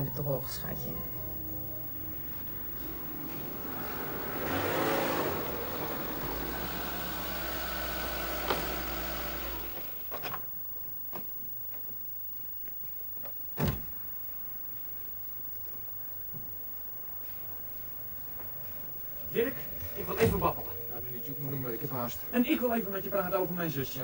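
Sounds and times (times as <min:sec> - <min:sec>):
car engine running: 0:01.8 - 0:10.1.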